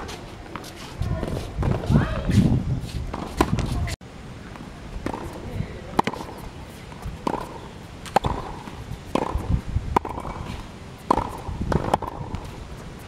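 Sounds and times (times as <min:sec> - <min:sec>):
tennis ball struck with rackets: 0:05.0 - 0:12.6.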